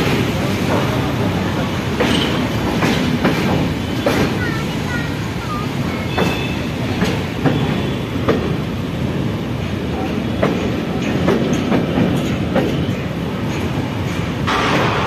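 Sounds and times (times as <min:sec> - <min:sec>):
clacks over rail joints: 0:00.0 - 0:05.3, 0:06.0 - 0:15.0
train wheels rumbling on rail: 0:00.0 - 0:15.0.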